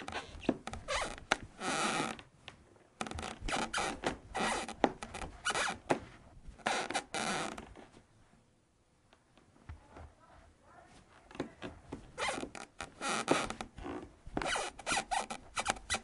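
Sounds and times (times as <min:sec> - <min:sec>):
squeaky floor creaking: 0:00.0 - 0:02.3, 0:03.0 - 0:08.0, 0:11.2 - 0:16.0.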